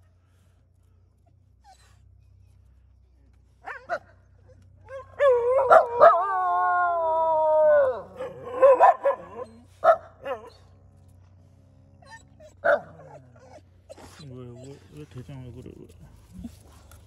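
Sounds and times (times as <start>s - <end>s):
dogs barking: 3.6s - 4.2s, 4.9s - 6.3s, 7.9s - 10.7s, 12.1s - 14.2s
dog howling: 4.8s - 9.6s.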